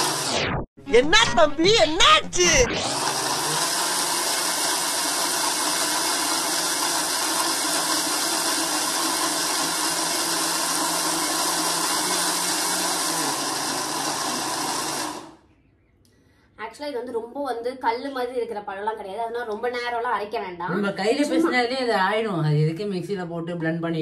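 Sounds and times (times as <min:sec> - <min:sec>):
mixer grinder motor running: 0:00.0 - 0:00.5, 0:02.0 - 0:15.4.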